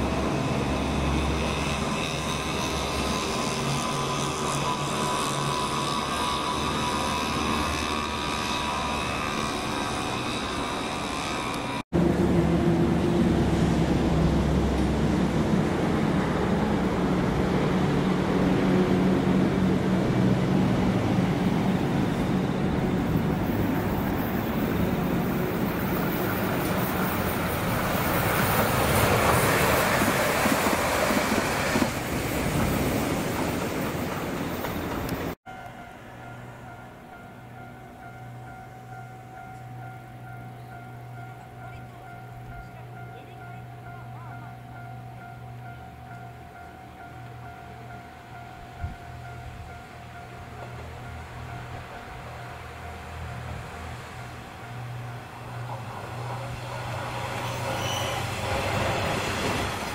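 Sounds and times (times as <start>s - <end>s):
aircraft engine drone and whine: 0.0s - 30.2s
train wheels rumbling on rail: 0.0s - 59.9s.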